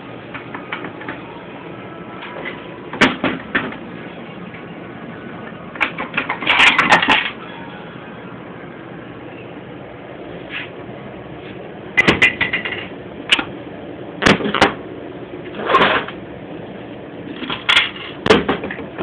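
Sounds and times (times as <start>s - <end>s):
metal parts knocking and clattering: 5.8s - 7.4s, 17.4s - 18.8s.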